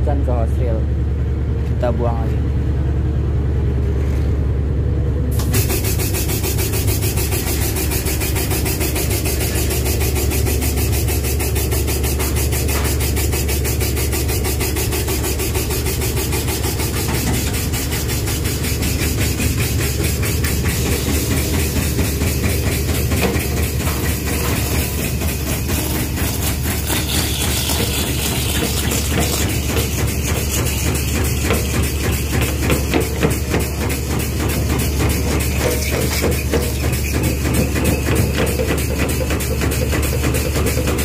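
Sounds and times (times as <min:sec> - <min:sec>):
oil pump pulsing: 0:05.3 - 0:41.0
truck engine humming: 0:12.4 - 0:35.6.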